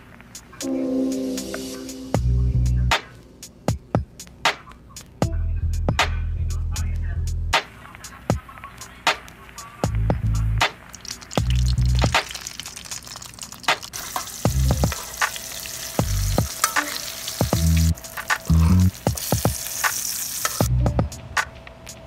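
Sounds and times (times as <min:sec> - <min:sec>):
deep bass music notes: 0:01.9 - 0:03.0, 0:05.2 - 0:07.6, 0:09.9 - 0:10.6, 0:11.4 - 0:12.2, 0:14.5 - 0:15.0, 0:16.0 - 0:16.5, 0:17.5 - 0:19.0, 0:20.7 - 0:21.2
fish sizzling in hot oil: 0:10.8 - 0:20.7
metal spoon scraping wok: 0:18.2 - 0:20.7.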